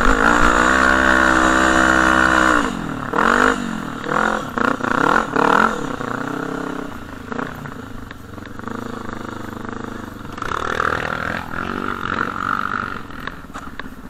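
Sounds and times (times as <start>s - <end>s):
quad engine revving: 0.0s - 13.6s.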